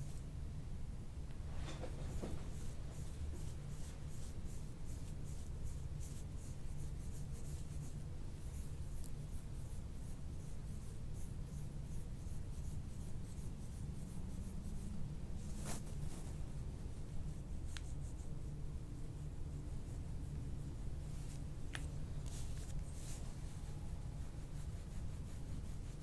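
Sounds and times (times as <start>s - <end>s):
steady low hum: 0.0s - 26.0s
hands brushing over skin: 13.3s - 18.3s, 19.5s - 26.0s.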